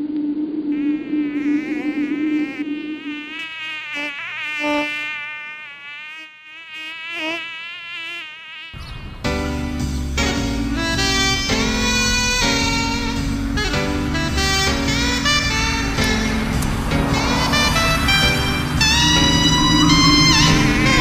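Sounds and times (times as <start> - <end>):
cartoon fly buzzing: 0.7 - 9.0, 10.2 - 21.0
music: 8.9 - 21.0.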